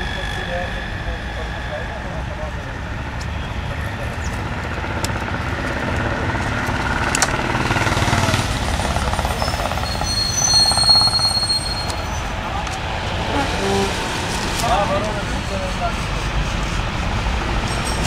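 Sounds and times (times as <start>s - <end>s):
rumbling vehicle noise: 0.0s - 18.0s
high-pitched squeal: 9.3s - 15.7s.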